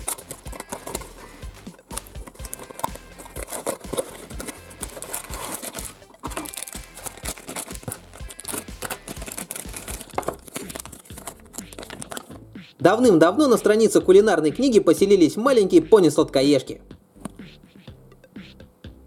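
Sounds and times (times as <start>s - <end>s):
foil bag tearing: 0.0s - 12.3s
cardboard box crinkling: 0.0s - 12.4s
plastic wrappers crinkling: 0.0s - 12.4s
background music: 0.0s - 19.0s.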